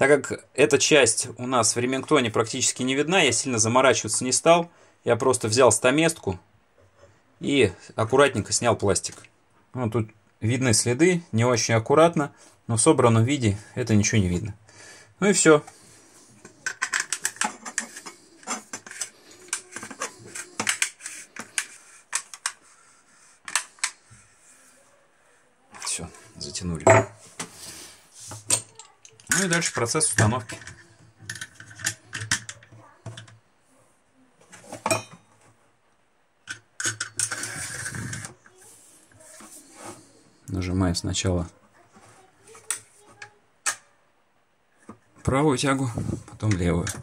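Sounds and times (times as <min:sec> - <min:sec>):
metal parts scraping: 0:36.8 - 0:38.3.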